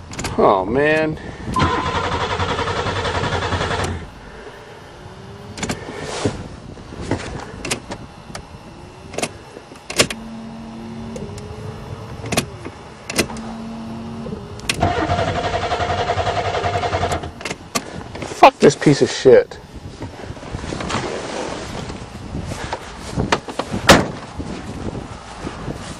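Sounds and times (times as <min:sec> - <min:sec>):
short hums: 0:01.5 - 0:06.7, 0:08.6 - 0:17.4
starter motor cranking engine: 0:01.6 - 0:04.4, 0:14.1 - 0:17.5.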